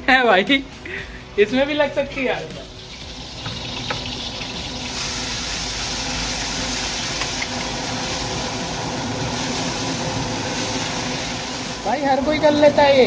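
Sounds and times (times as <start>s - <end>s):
oil sizzling in wok: 2.6s - 12.5s
gas burner roaring: 2.6s - 13.0s.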